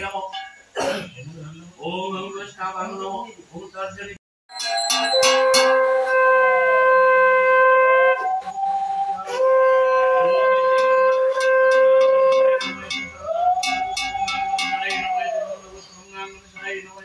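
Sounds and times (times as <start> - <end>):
conch shell blown: 5.2 - 15.4.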